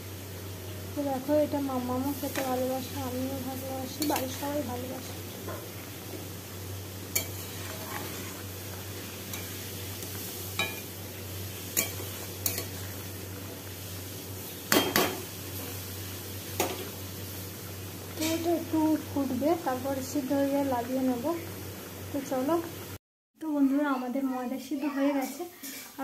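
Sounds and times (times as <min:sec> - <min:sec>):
boiling pot hiss: 0:00.0 - 0:23.0, 0:24.5 - 0:26.0
ladle clinking against wok: 0:11.8 - 0:12.8.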